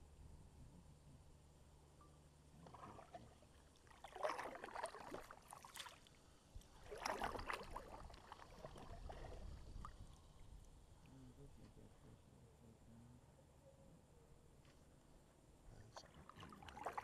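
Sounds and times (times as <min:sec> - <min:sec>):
kayak paddle splashing water: 0:02.6 - 0:10.6, 0:16.0 - 0:17.0.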